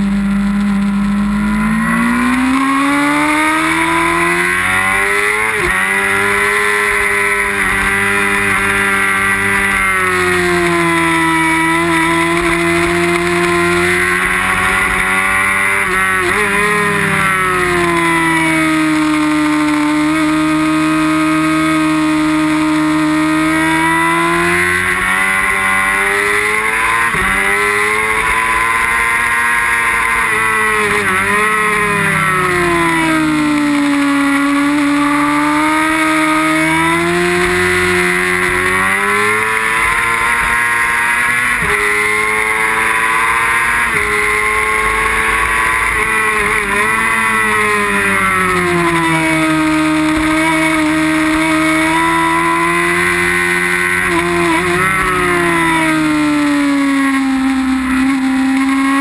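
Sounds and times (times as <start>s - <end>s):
motorcycle engine at racing revs: 0.0s - 59.0s.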